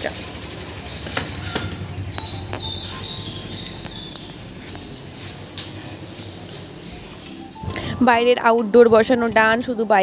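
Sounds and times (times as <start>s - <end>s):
low background noise: 0.0s - 10.0s
footsteps walking downstairs: 0.3s - 8.1s.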